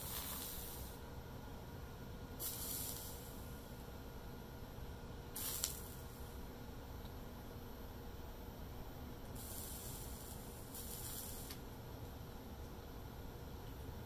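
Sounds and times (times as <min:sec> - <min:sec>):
soldering iron sizzling: 0:00.0 - 0:01.1, 0:02.3 - 0:04.4, 0:05.3 - 0:07.2, 0:09.2 - 0:11.9.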